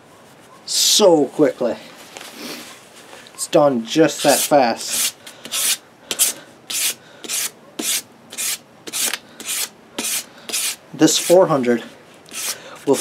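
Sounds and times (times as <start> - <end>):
sandpaper scratching on steel: 4.1 - 11.5, 12.3 - 13.0.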